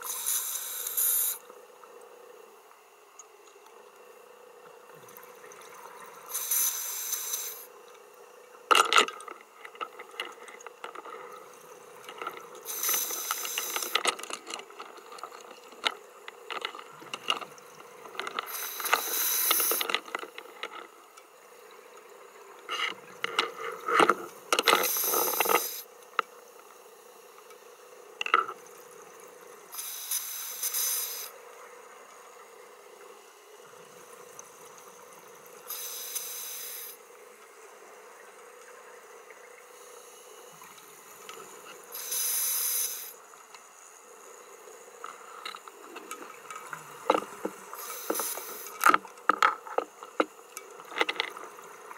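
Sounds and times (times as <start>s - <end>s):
exhaled bubbles hissing underwater: 0.0s - 1.6s, 4.6s - 7.8s, 11.1s - 14.0s, 16.9s - 20.0s, 24.4s - 25.9s, 29.0s - 31.4s, 33.6s - 37.0s, 38.1s - 43.4s, 44.1s - 48.9s
faint steady hum: 0.0s - 51.9s.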